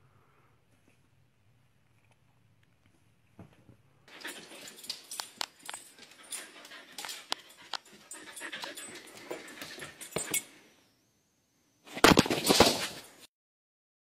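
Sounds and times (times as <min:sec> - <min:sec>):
dog panting: 0:04.1 - 0:10.4.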